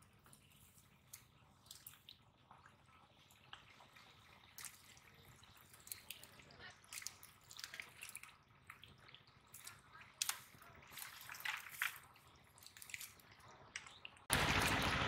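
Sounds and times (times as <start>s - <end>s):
hands splashing in muddy water: 9.5s - 13.4s.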